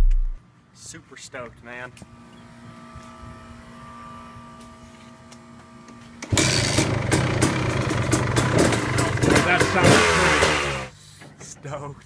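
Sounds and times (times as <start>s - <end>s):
dirt bike engine popping: 6.4s - 10.7s.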